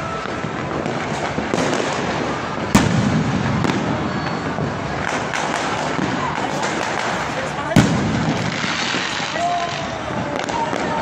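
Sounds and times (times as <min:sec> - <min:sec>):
close firework bang: 0:00.0 - 0:11.0
distant fireworks crackling: 0:00.0 - 0:11.0.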